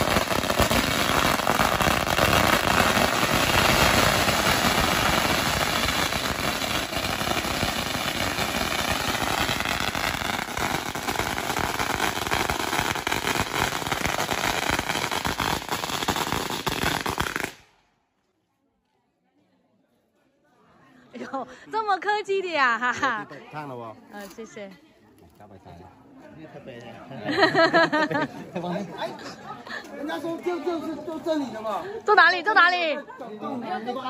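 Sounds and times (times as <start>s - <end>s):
firecrackers crackling: 0.0s - 18.0s.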